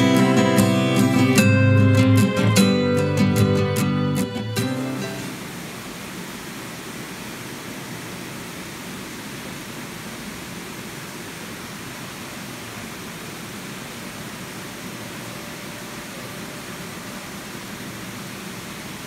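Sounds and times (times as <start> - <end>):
swimming pool hall hiss: 4.3 - 19.0.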